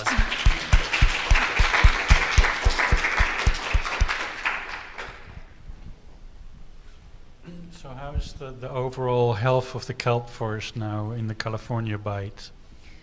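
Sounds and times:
audience applauding: 0.0 - 5.5
dull close claps: 0.0 - 5.5.

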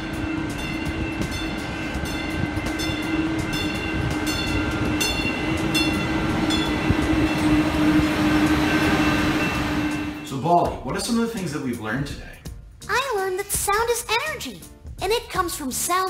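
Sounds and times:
regular ringing strike: 0.0 - 10.5
train cars rolling past: 0.0 - 11.4.

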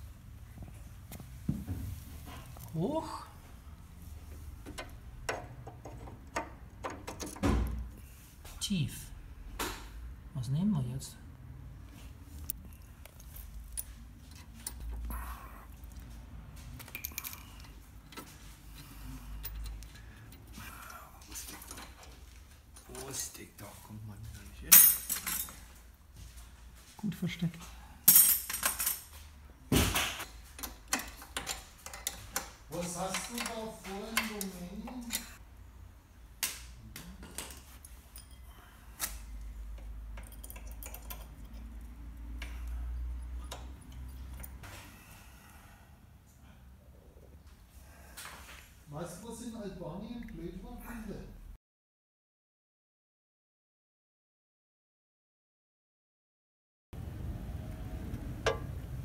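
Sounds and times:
metal tool clinking on bolts: 24.7 - 25.6, 30.6 - 34.4, 37.2 - 38.4, 39.8 - 41.9, 43.4 - 44.6, 58.4 - 58.8
light metallic clicks and rattles: 30.4 - 35.4, 39.0 - 42.7, 58.1 - 58.8
low steady hum: 57.0 - 59.0.

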